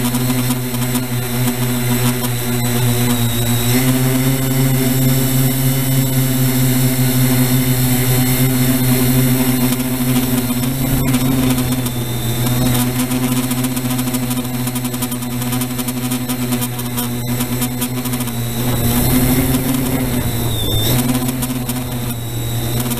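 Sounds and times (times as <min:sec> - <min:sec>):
drone propellers humming: 0:00.0 - 0:22.9.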